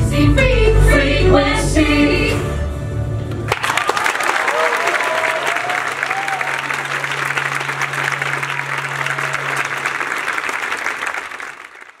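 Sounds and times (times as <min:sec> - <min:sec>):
audience applauding: 0:03.5 - 0:12.0.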